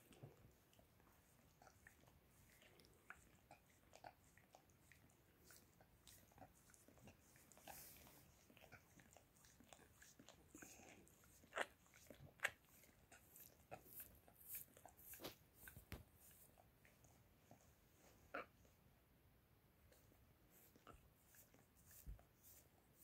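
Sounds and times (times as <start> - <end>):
dog licking: 0.0 - 17.6.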